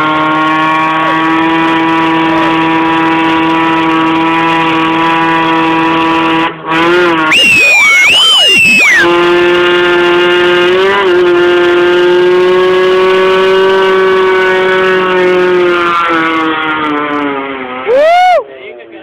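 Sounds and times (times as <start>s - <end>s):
engine revving high: 0.0s - 18.0s
tyre squealing: 7.3s - 9.1s.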